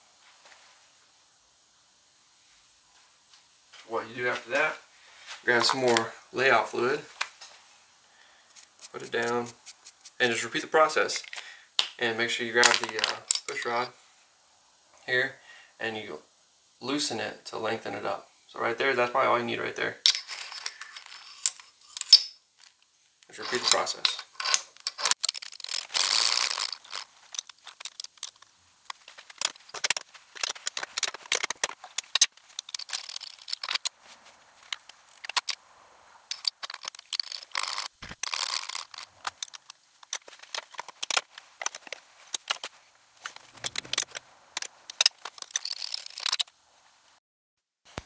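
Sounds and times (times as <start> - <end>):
metal parts clicking and clattering: 12.6 - 13.9, 20.0 - 33.9, 34.6 - 35.6, 36.3 - 46.5.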